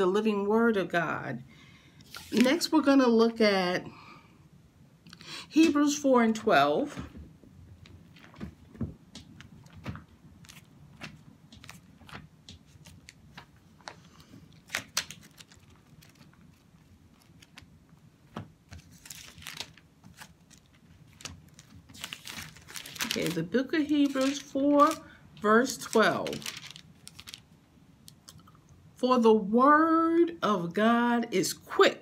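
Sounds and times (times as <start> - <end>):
book pages rustling: 2.0 - 2.7, 7.2 - 25.1, 25.7 - 27.5.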